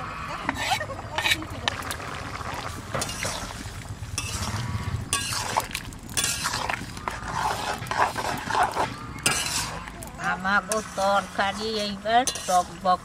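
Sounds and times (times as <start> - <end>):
metal spatula scraping pan: 0.5 - 1.5, 2.9 - 13.0
curry bubbling: 0.5 - 13.0.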